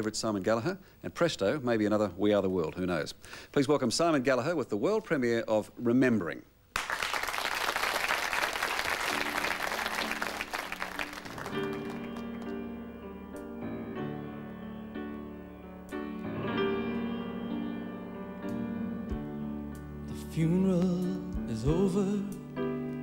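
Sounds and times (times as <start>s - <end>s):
studio audience applause: 6.8s - 12.6s
slow grand piano chords: 8.5s - 23.0s.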